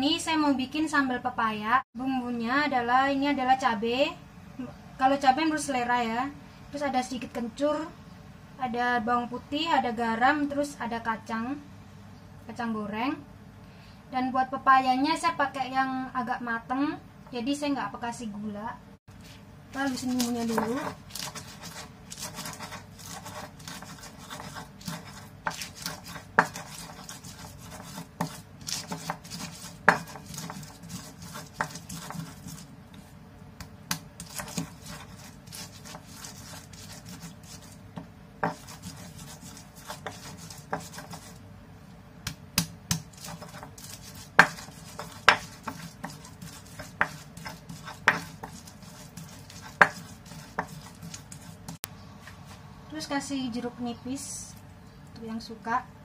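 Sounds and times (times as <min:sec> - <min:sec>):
stone pestle grinding: 0:19.2 - 0:33.0, 0:33.6 - 0:41.4, 0:42.6 - 0:51.8.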